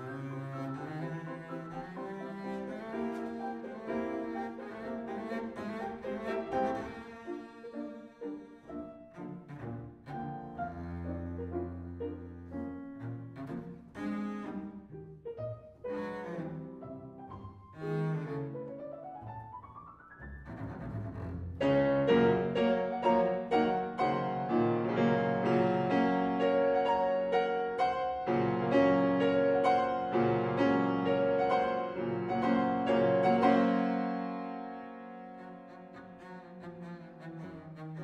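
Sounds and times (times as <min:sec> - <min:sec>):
bowed double bass: 0:00.0 - 0:07.6, 0:09.0 - 0:14.9, 0:15.8 - 0:18.8, 0:20.2 - 0:26.4
piano chords: 0:00.0 - 0:38.0.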